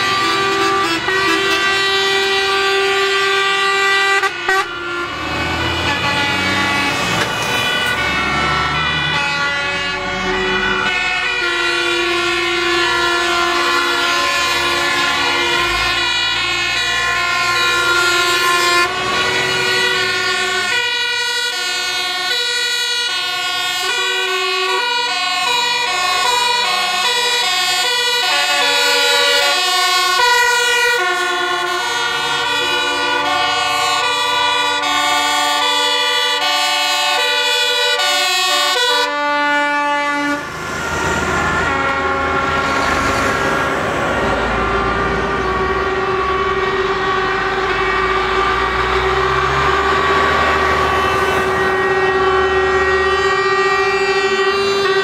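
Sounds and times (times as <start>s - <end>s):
heavy truck passing: 0.0s - 55.0s
truck air horns: 0.0s - 55.0s
two-tone siren: 0.0s - 55.0s.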